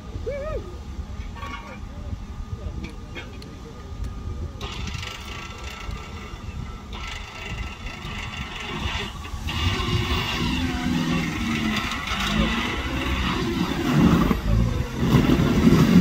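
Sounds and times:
engine revving under load: 0:04.6 - 0:16.0.

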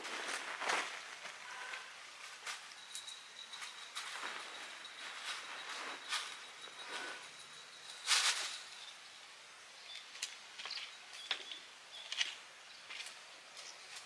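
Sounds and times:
soft rustles: 0:00.0 - 0:08.8.

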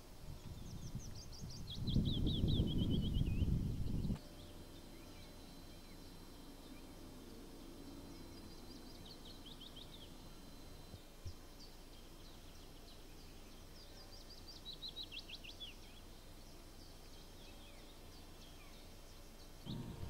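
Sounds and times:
songbird song: 0:00.0 - 0:20.0
low background rumble: 0:19.6 - 0:20.0.

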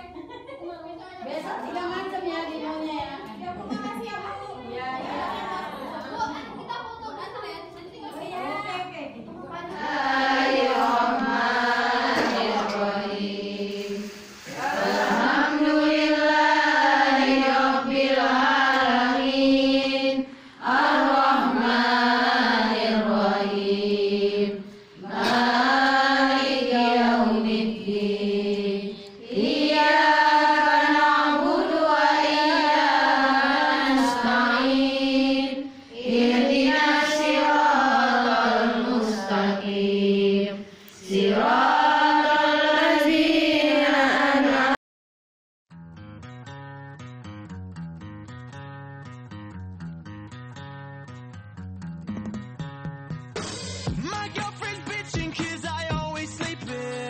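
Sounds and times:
women chanting in unison: 0:09.7 - 0:44.8.

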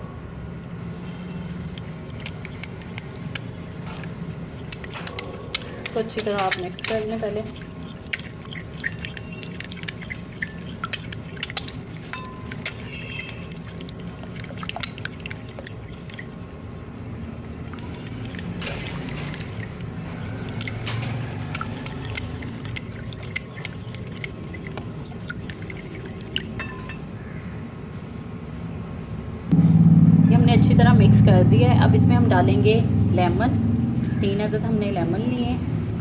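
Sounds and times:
soft wet stirring: 0:00.6 - 0:27.0
spoon clinking against glass: 0:01.0 - 0:16.4, 0:17.2 - 0:27.0.

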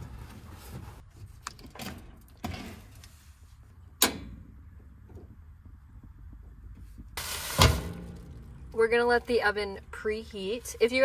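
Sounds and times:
metal oven knocks and clunks: 0:07.5 - 0:08.7.

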